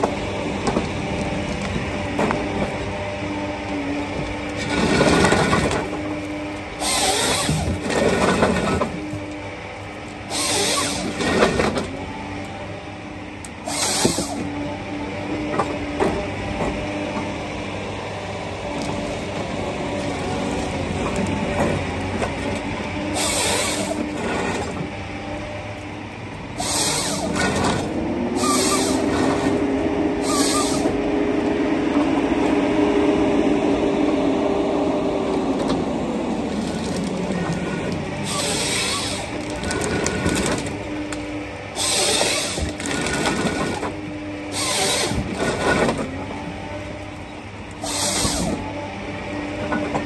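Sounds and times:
diesel engine and hydraulics: 0.0 - 50.0
harvester head cutting bursts: 6.7 - 9.0, 10.2 - 11.7, 13.6 - 14.5, 23.1 - 24.6, 26.6 - 31.0, 38.0 - 46.0, 47.8 - 48.7.

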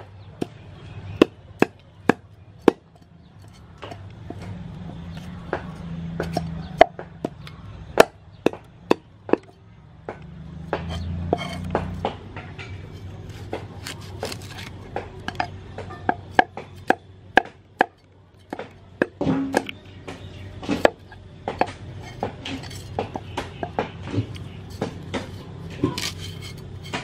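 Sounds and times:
knife scraping fish scales: 12.9 - 14.8, 22.0 - 23.0, 24.3 - 27.0.

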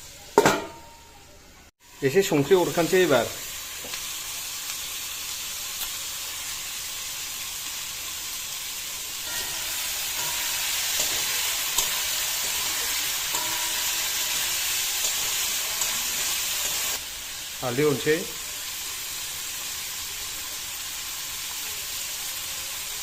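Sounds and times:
food sizzling in a wok: 0.0 - 23.0
spatula scraping a pan: 9.3 - 17.0.

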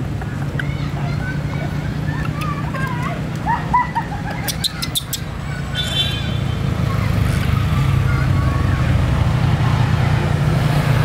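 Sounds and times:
baby monkey squeaky calls: 4.0 - 6.4.

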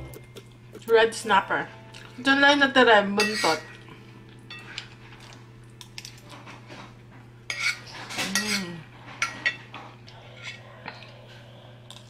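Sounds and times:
steady low hum: 0.0 - 12.0
metal spoon scraping a plate: 7.5 - 9.6.

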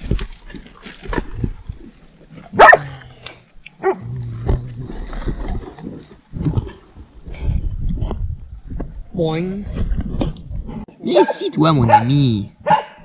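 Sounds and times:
dog barking: 2.6 - 2.8, 11.2 - 13.0.

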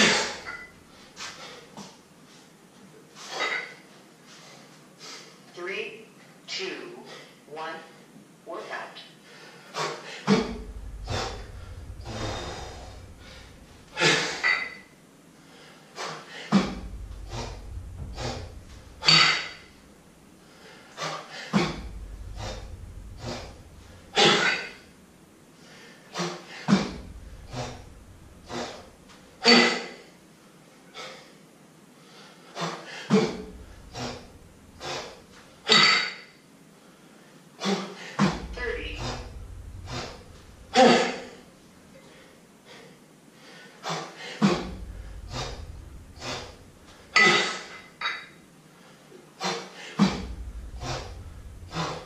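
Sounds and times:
man breathing heavily: 32.0 - 35.7, 36.8 - 47.2.

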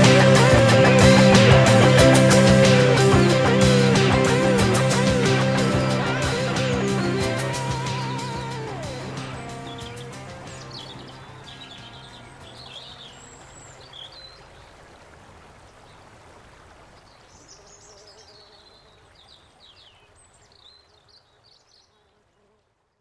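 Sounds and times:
guitar music: 0.0 - 12.9
birds chirping and singing: 6.5 - 14.4.

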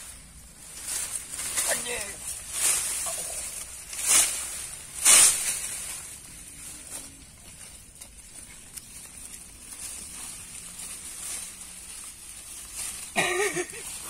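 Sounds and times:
high hiss: 0.0 - 6.2
hands digging in soil: 0.0 - 14.0
rustling through leafy undergrowth: 0.0 - 14.0.

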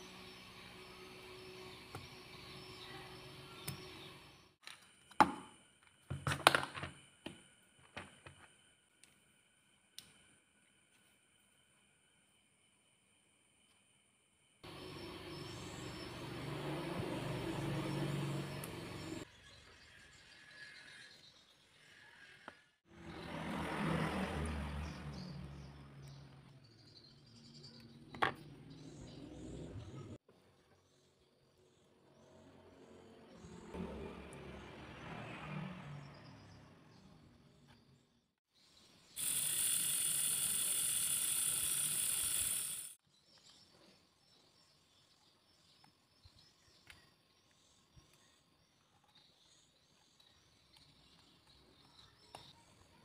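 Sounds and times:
small plastic gear ticks: 39.2 - 43.0.

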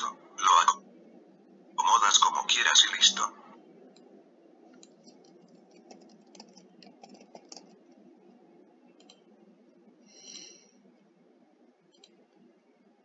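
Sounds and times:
steady low hum: 0.0 - 13.0
keyboard typing: 4.7 - 8.0, 9.0 - 9.2.

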